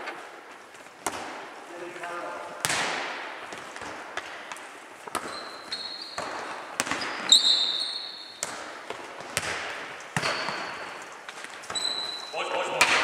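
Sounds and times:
ball thudding on hall floor: 1.0 - 1.6, 2.6 - 12.2
shoe squeaks: 5.2 - 8.4, 10.2 - 12.8.

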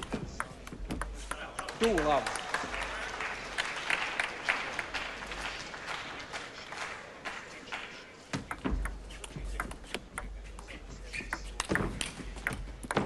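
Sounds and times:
crowd applause: 1.4 - 7.9.

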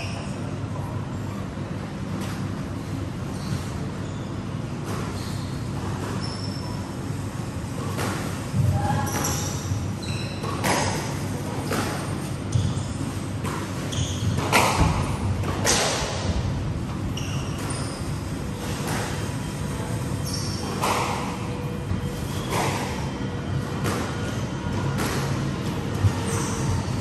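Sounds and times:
shoes squeaking on wooden floor: 12.5 - 14.6, 17.1 - 19.3.

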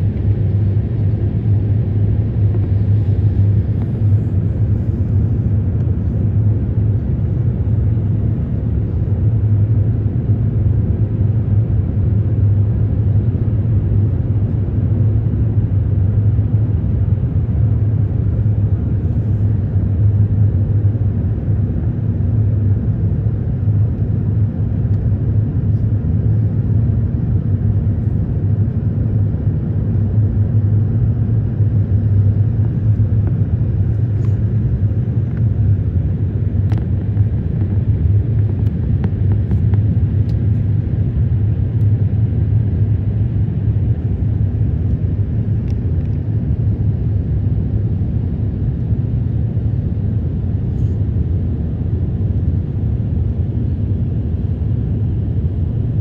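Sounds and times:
airliner cabin engine rumble: 0.0 - 56.0.

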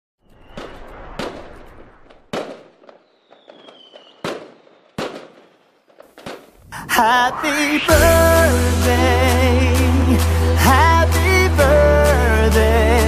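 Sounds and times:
faint whistle gliding down: 3.0 - 5.0, 6.9 - 9.1.

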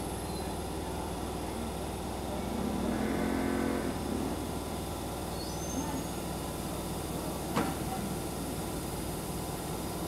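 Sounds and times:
electric train humming: 0.0 - 5.3.

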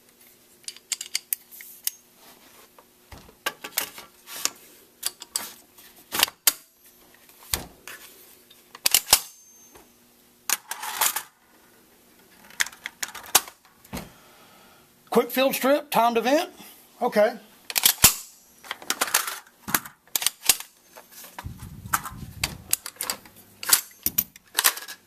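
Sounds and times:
metal parts clicking and rattling: 0.6 - 2.0, 8.8 - 9.6, 10.5 - 11.4, 12.4 - 13.6, 17.7 - 20.8, 21.4 - 25.0.

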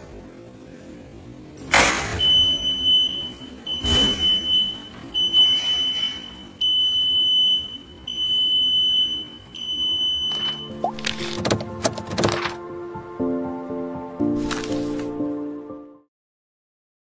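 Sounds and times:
door alarm buzzer beeping: 2.2 - 11.3.

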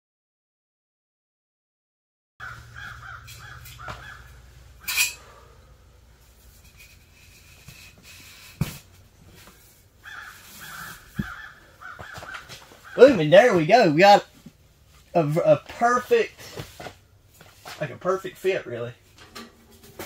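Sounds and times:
squawk-like calls: 2.4 - 5.1, 10.0 - 13.0.

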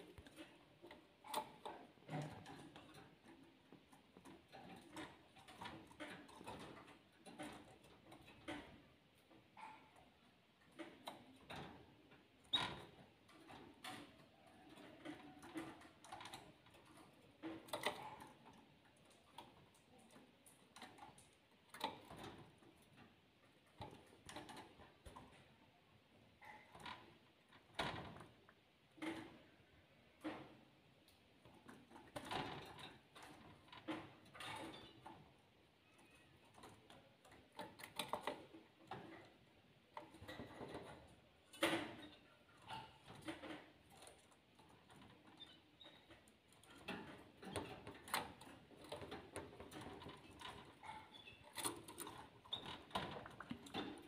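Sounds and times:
birds tapping and clicking in cage: 0.0 - 54.0.

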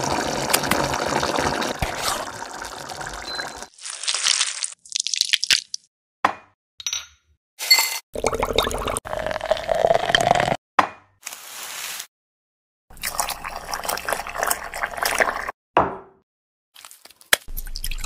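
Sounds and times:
water pouring into teapot: 0.0 - 5.4, 8.2 - 10.5, 12.9 - 15.5.

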